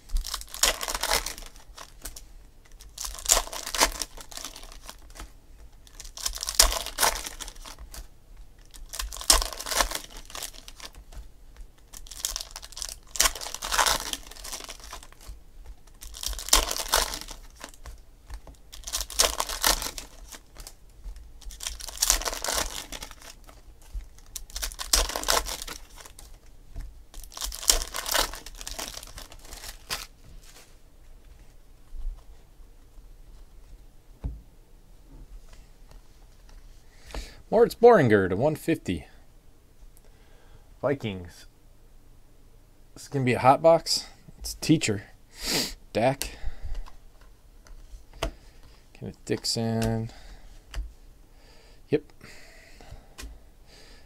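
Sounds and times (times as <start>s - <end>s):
foil packs tearing and crinkling: 0.1s - 11.1s, 11.9s - 20.8s, 21.4s - 26.4s, 27.1s - 30.1s.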